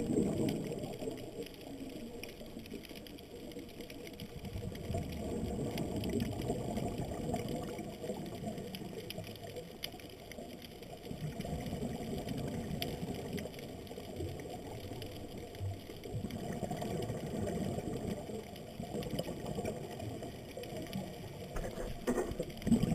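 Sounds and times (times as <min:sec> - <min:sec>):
faint clicks: 0:00.0 - 0:22.9
underwater exhaust bubbles: 0:00.0 - 0:22.9.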